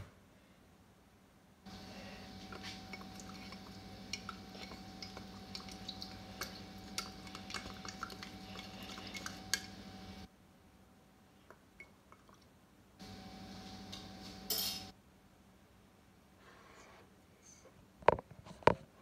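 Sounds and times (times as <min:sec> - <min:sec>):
steady low hum: 0:01.6 - 0:11.4.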